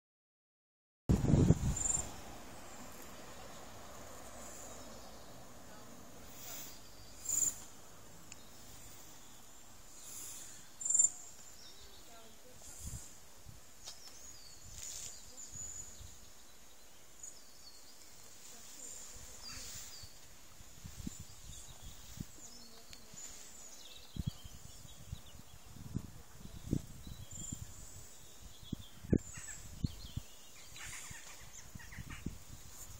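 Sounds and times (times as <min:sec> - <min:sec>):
faint bird chirps: 0:06.4 - 0:12.7, 0:13.9 - 0:20.3, 0:20.9 - 0:32.9.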